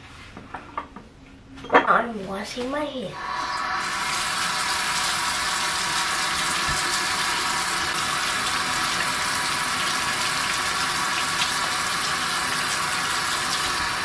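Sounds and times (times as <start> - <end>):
tap running into a sink: 6.4 - 11.8.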